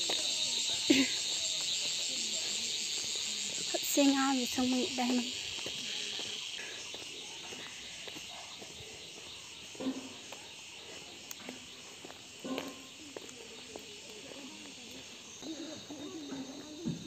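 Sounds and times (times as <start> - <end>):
footsteps on gravel: 0.0 - 8.8
faint distant voices: 0.0 - 17.0
insects chorus: 0.0 - 17.0.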